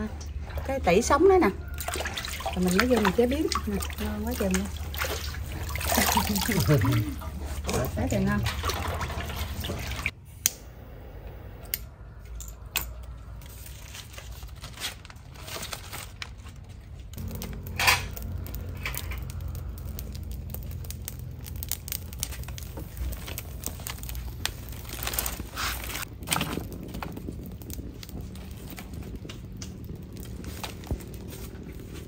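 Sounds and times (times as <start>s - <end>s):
low steady hum: 0.0s - 15.5s, 16.2s - 32.0s
rustling and crinkling: 13.0s - 32.0s.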